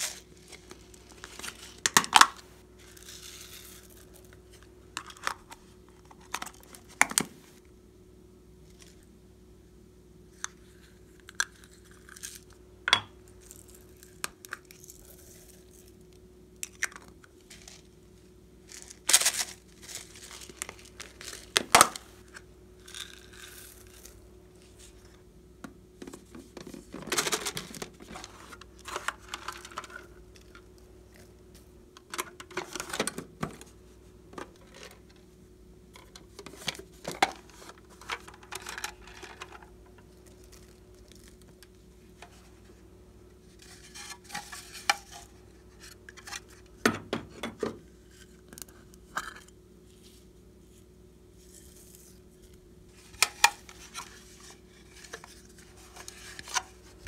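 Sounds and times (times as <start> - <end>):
crinkling rustling: 18.7 - 22.4.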